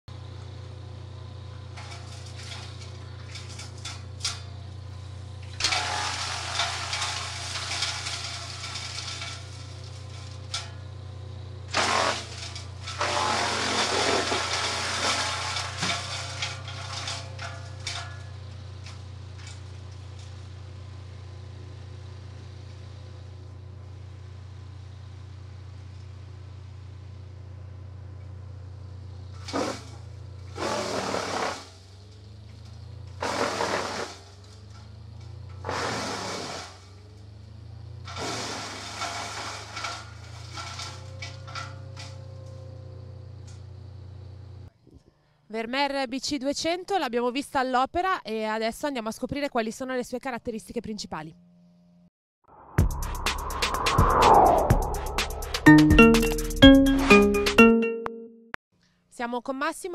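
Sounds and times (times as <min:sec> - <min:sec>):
wood chipper engine running: 0:00.1 - 0:44.7.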